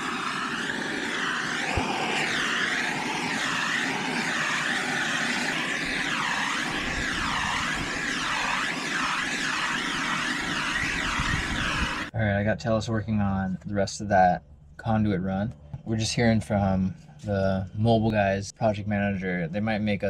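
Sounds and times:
heat gun blowing hiss: 0:00.0 - 0:12.1.

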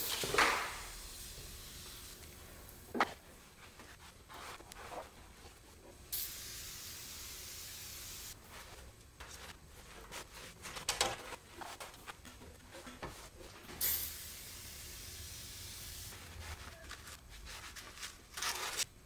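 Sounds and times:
aerosol spray hiss: 0:00.0 - 0:02.4, 0:06.1 - 0:08.4, 0:13.8 - 0:16.2.

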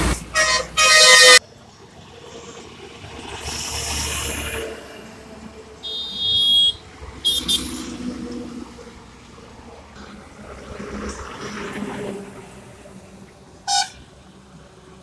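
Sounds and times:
highway traffic passing: 0:00.0 - 0:15.0
truck engine drone: 0:00.0 - 0:15.0
vehicle horn: 0:00.3 - 0:01.4, 0:05.8 - 0:08.0, 0:13.7 - 0:14.0.

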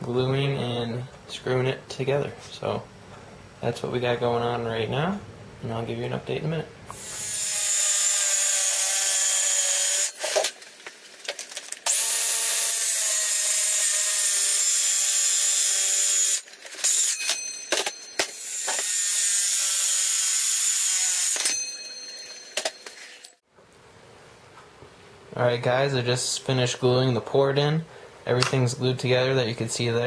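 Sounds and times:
circular saw cutting board: 0:06.9 - 0:10.6, 0:11.8 - 0:23.4.

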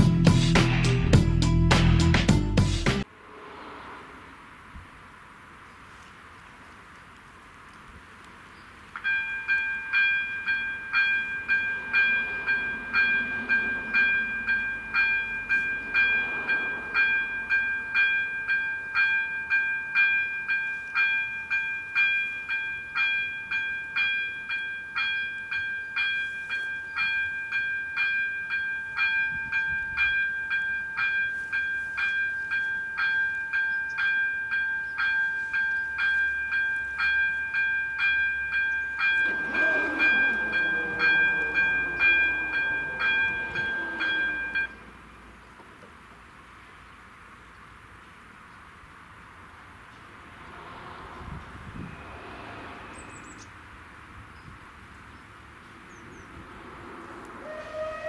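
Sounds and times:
level crossing warning bell: 0:09.0 - 0:44.9
barrier motors whirring: 0:39.2 - 0:44.6.

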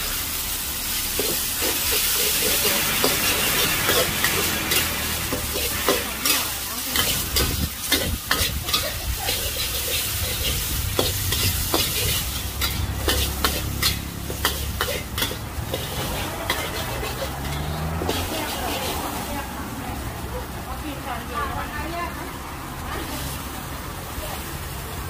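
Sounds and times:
frying sizzle: 0:00.0 - 0:25.0
metal spatula scraping a wok: 0:01.0 - 0:19.5.

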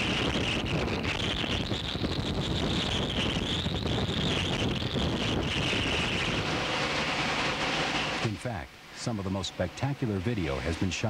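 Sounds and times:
wind buffeting microphone: 0:00.0 - 0:07.9
wind-driven rain: 0:00.0 - 0:11.0.

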